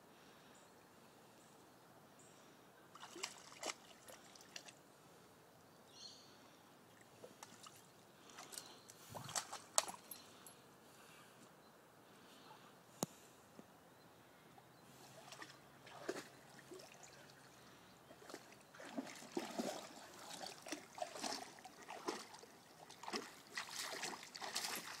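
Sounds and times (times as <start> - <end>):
dog splashing in water: 3.0 - 4.7, 9.2 - 10.0, 15.3 - 16.9, 18.2 - 25.0.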